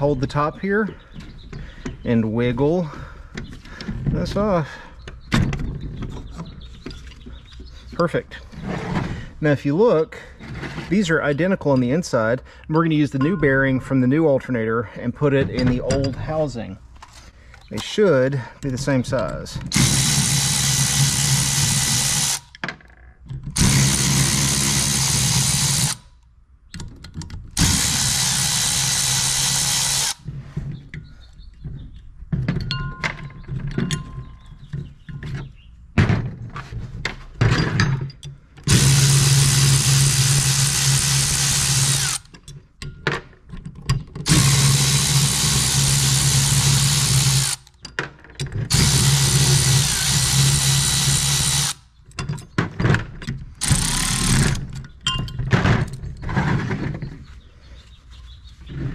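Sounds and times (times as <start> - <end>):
power driver spinning: 18.6 - 22.5, 27.6 - 30.3, 38.6 - 42.3, 44.3 - 47.7, 48.7 - 51.8, 53.6 - 54.9
metal parts clinking: 32.5 - 35.2.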